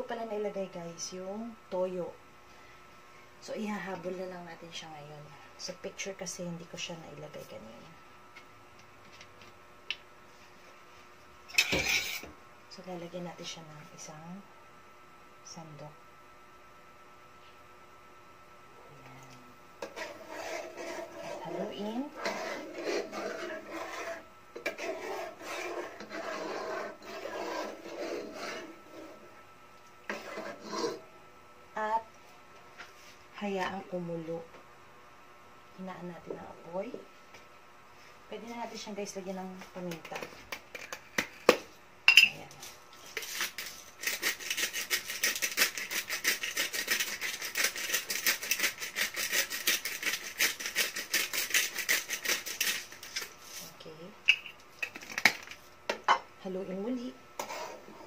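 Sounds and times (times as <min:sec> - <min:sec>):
metal ladle scraping pot: 0:19.8 - 0:29.2, 0:30.1 - 0:31.0.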